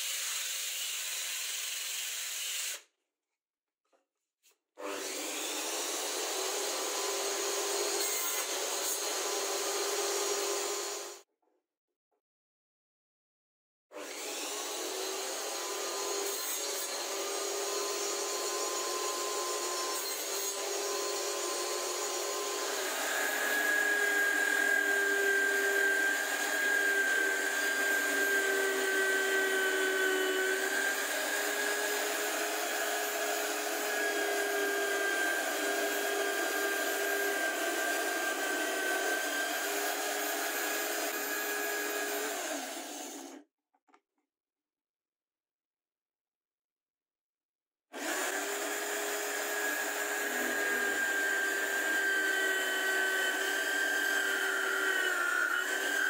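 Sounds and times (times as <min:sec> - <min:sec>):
drill bit boring into wood: 0:14.0 - 0:43.4, 0:48.0 - 0:56.0
drill press motor whining: 0:48.0 - 0:56.0.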